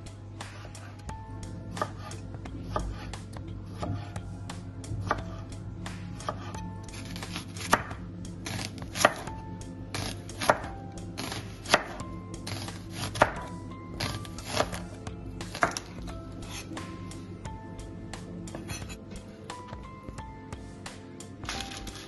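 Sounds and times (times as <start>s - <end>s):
knife slicing on cutting board: 18.5s - 19.0s.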